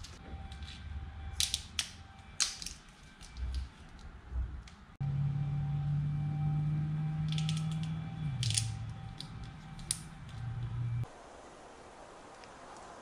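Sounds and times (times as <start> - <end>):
steady low hum: 0.0 - 12.0
plastic clicks and rattles: 7.3 - 10.4.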